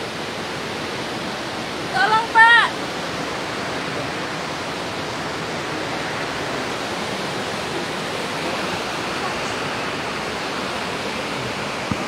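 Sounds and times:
floodwater rushing: 0:00.0 - 0:12.0.

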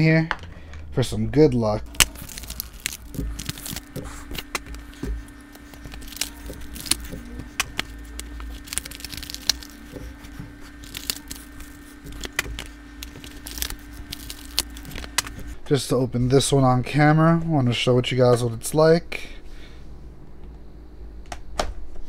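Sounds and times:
foil wrappers crinkling: 0:01.8 - 0:15.6.

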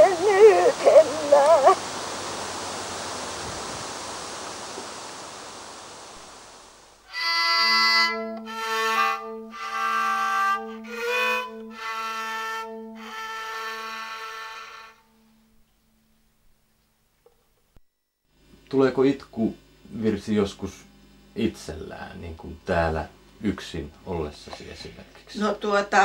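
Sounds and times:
solo fiddle melody: 0:07.0 - 0:15.6.

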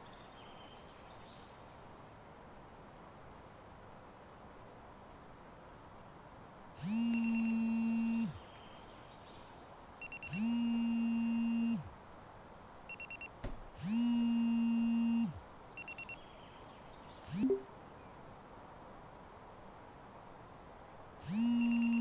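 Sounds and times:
phone vibration buzzes: 0:06.8 - 0:08.4, 0:10.0 - 0:11.9, 0:12.9 - 0:16.2, 0:21.2 - 0:22.0
short high beeps: 0:07.0 - 0:08.3, 0:10.0 - 0:11.8, 0:12.9 - 0:13.3, 0:15.0 - 0:16.2, 0:17.4 - 0:17.7, 0:21.5 - 0:22.0.

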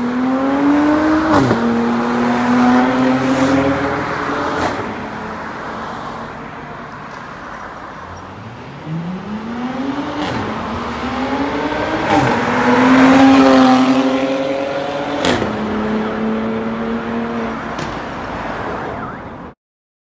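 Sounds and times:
car engine accelerating hard: 0:00.0 - 0:05.1, 0:08.2 - 0:17.6.

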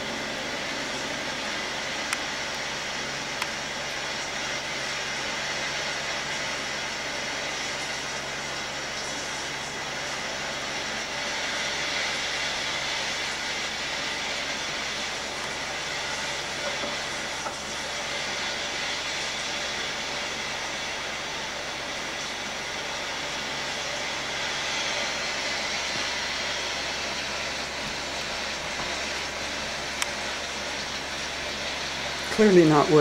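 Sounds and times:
storm recording through speaker: 0:32.2 - 0:33.0.

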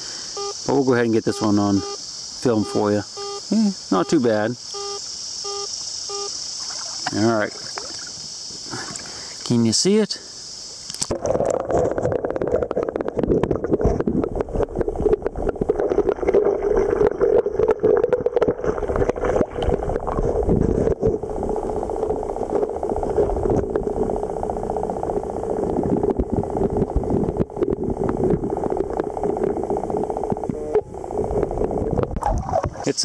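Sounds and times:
underwater steady hum: 0:00.0 - 0:33.0
gravel and stones clicking underwater: 0:10.9 - 0:30.6, 0:31.3 - 0:32.8.

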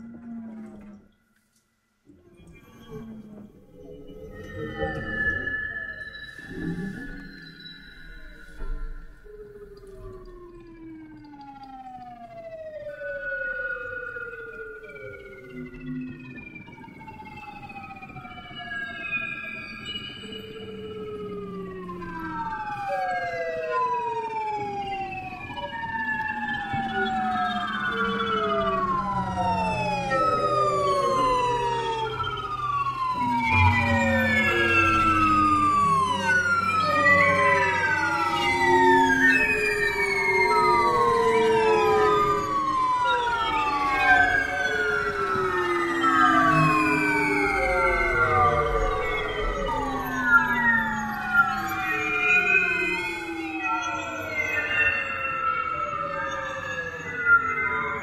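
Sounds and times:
siren-like sliding tones: 0:02.4 - 0:58.0
low steady drone: 0:20.6 - 0:53.6.

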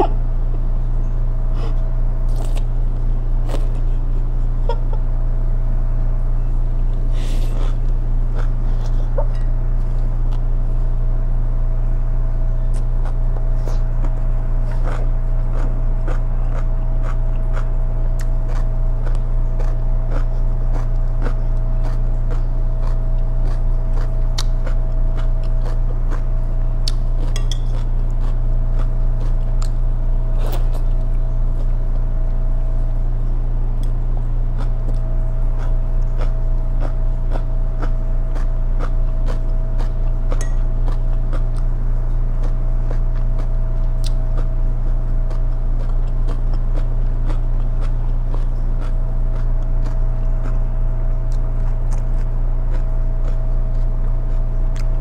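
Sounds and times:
low hum: 0:00.0 - 0:55.0
chewing and slurping: 0:01.6 - 0:04.5, 0:06.9 - 0:10.8, 0:12.5 - 0:33.0, 0:33.8 - 0:55.0
chopsticks clinking: 0:27.2 - 0:27.8, 0:40.4 - 0:40.6.

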